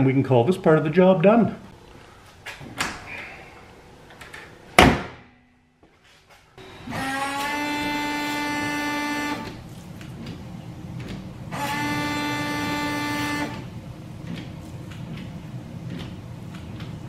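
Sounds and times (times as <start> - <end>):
washer pump whining: 6.6 - 17.0.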